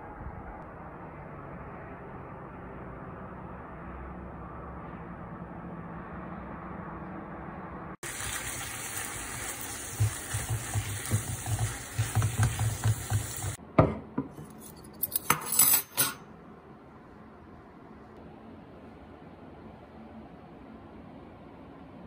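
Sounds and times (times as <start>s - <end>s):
food sizzling in a frying pan: 8.0s - 13.6s
spatula knocking against pan: 10.0s - 14.0s
utensil clinking on dishes: 14.2s - 16.3s.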